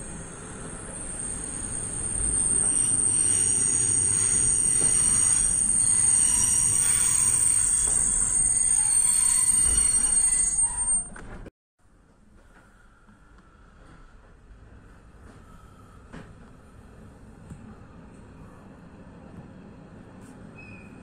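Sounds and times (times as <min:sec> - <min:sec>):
train brakes squealing: 0:00.0 - 0:11.3, 0:20.5 - 0:21.0
train rumbling on rails: 0:00.0 - 0:21.0.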